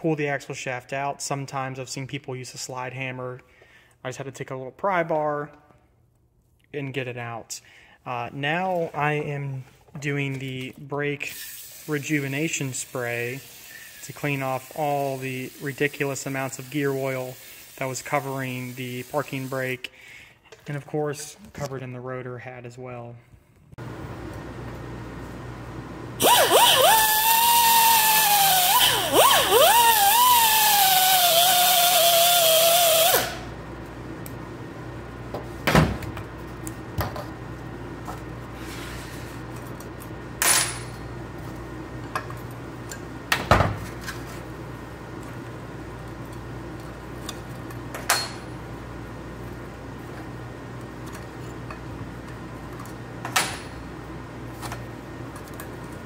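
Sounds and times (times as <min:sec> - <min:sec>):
grinder cutting metal: 0:26.2 - 0:33.4.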